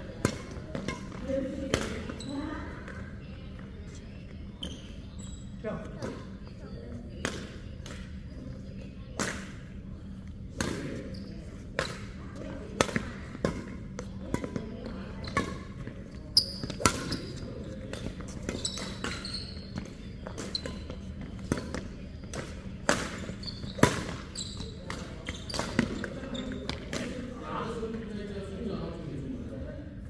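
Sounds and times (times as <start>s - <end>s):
shoe squeaks on court floor: 1.9s - 2.5s, 4.6s - 5.6s, 10.9s - 11.6s, 15.2s - 26.9s
rackets striking shuttlecock: 19.8s - 24.2s.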